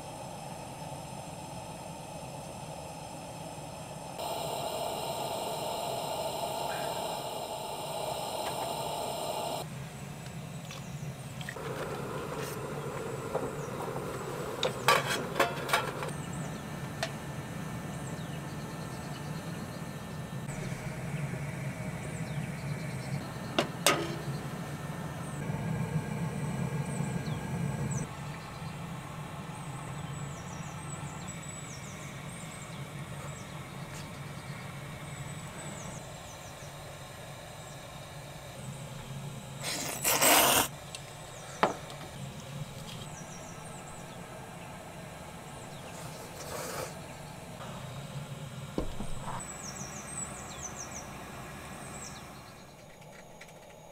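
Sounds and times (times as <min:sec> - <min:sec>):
gas stove low hum: 0:00.0 - 0:10.3, 0:10.9 - 0:40.0.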